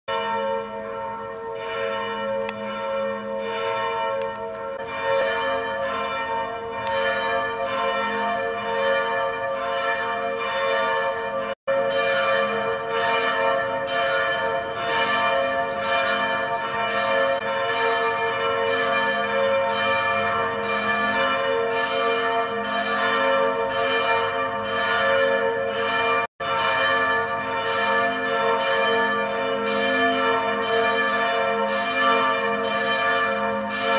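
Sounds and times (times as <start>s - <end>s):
church bells ringing in a peal: 0.1s - 33.9s.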